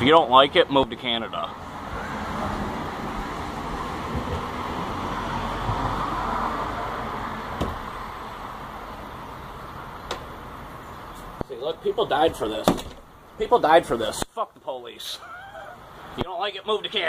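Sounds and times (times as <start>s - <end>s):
passing vehicle hiss: 1.6s - 11.3s.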